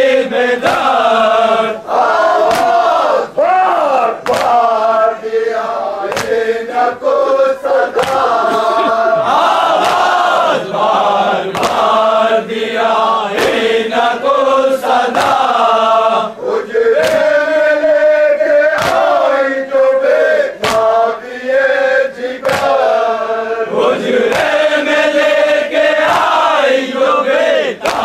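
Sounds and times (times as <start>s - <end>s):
men chanting in unison: 0.0s - 28.0s
hands slapping chest: 0.6s - 0.9s, 2.4s - 2.9s, 4.2s - 4.8s, 6.1s - 6.4s, 7.9s - 10.4s, 11.5s - 12.0s, 13.3s - 13.7s, 15.1s - 15.6s, 17.0s - 17.4s, 18.7s - 19.3s, 20.6s - 21.0s, 22.4s - 23.0s, 24.2s - 24.6s, 26.0s - 26.5s, 27.8s - 28.0s.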